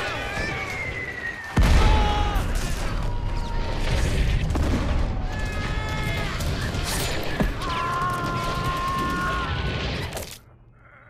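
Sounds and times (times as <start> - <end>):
descending whistling tones: 0.0 - 3.6
explosion rumble: 0.4 - 10.1.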